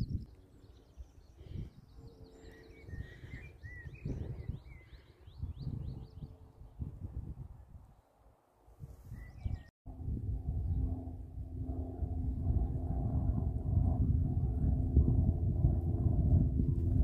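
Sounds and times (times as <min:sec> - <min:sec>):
birds chirping and warbling: 0:00.0 - 0:06.9, 0:09.1 - 0:09.7
wind buffeting microphone: 0:00.0 - 0:08.0, 0:08.7 - 0:17.0.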